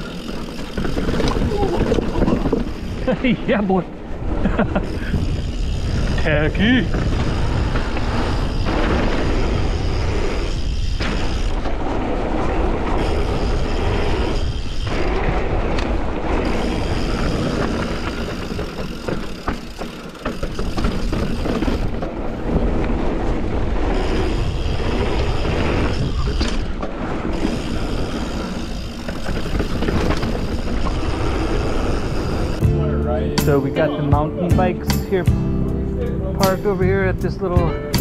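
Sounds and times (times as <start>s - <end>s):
bike tyres rolling: 0.0s - 34.8s
wind noise on microphone: 4.0s - 19.3s, 20.4s - 32.6s.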